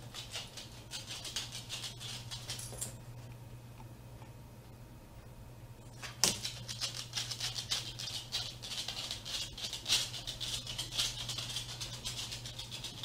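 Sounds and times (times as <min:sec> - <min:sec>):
low steady hum: 0:00.0 - 0:13.0
dog claws clicking on wood floor: 0:00.1 - 0:03.0, 0:06.0 - 0:13.0.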